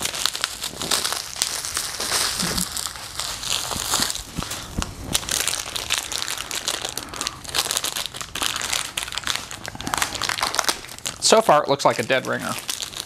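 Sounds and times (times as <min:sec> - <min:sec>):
packaging wrap crinkling: 0:00.0 - 0:13.0.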